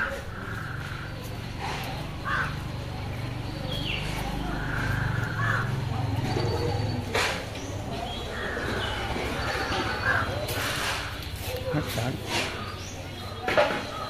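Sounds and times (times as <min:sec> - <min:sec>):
crows cawing: 0:00.0 - 0:02.8, 0:04.5 - 0:06.0, 0:08.2 - 0:11.1
bird calls: 0:00.0 - 0:14.0.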